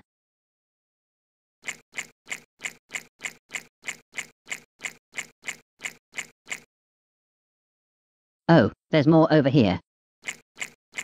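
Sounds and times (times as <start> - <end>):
repeated hissy click: 1.6 - 6.6.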